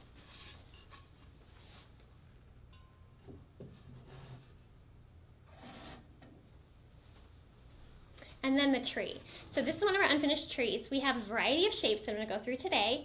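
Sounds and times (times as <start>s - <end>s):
soft rustles: 0.0s - 2.0s.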